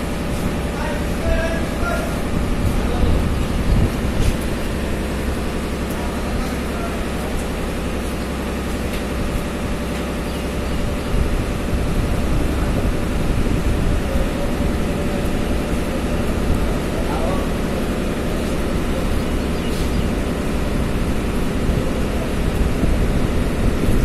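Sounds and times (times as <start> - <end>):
engine rumbling: 0.0 - 24.0.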